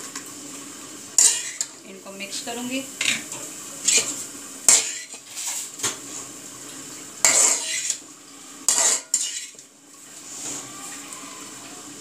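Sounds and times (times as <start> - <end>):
metal spoon scraping metal pan: 1.2 - 1.7, 3.8 - 5.6, 7.2 - 8.0, 8.7 - 9.6.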